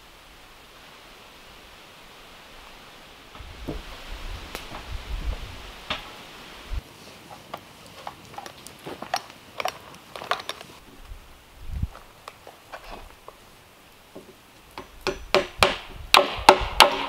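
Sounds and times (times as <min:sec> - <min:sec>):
wooden boards knocking: 0:14.2 - 0:17.0.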